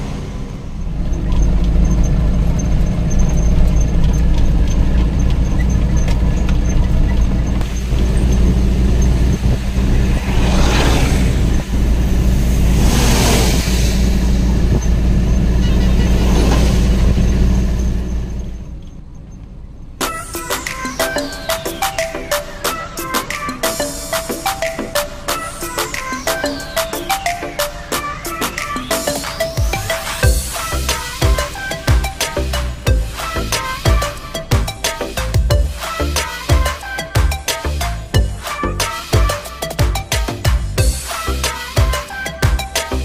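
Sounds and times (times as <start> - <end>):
truck engine and road drone: 0.0 - 43.0
vehicles passing: 0.0 - 43.0
music: 20.0 - 43.0.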